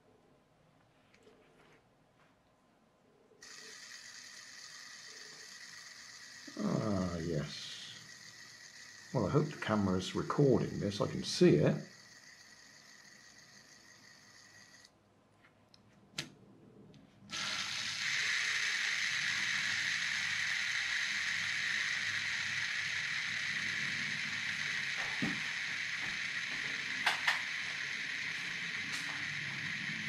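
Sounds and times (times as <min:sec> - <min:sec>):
fidget spinner whirring: 0:03.4 - 0:15.0, 0:17.2 - 0:30.0
sharp clicks: 0:25.0 - 0:27.5.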